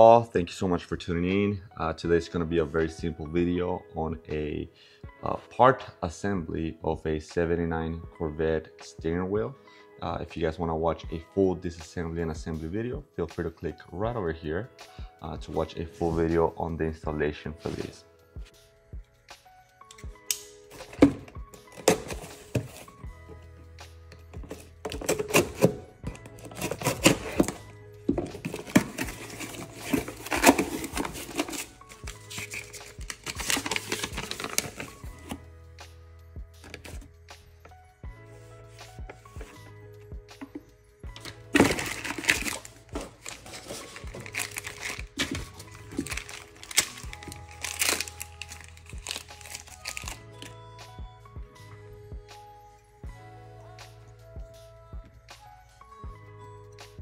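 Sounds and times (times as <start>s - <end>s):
background music: 0.0s - 57.0s
cardboard box rustling and scraping: 28.2s - 35.4s, 41.5s - 50.1s
plastic packaging crinkling: 28.3s - 35.0s, 41.2s - 50.2s.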